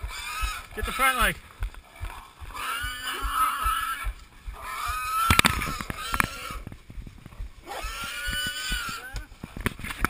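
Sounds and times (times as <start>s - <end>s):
wild boar squealing: 0.0s - 1.3s, 2.0s - 6.6s, 7.6s - 9.3s
brush crackling and scuffling: 0.0s - 10.0s.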